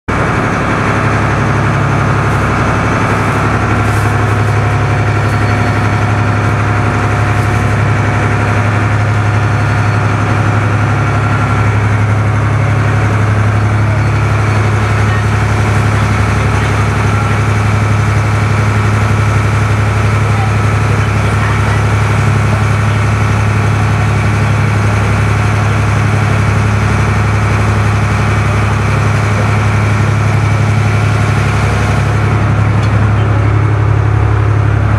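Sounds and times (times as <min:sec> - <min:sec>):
boat engine drone: 0:00.0 - 0:34.9
water and hull noise: 0:00.1 - 0:34.9.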